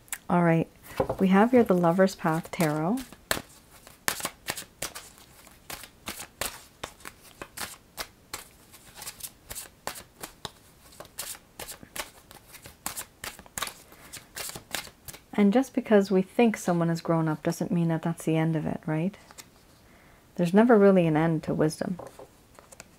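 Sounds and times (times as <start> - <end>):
cards being shuffled by hand: 1.0 - 15.2, 22.0 - 22.9.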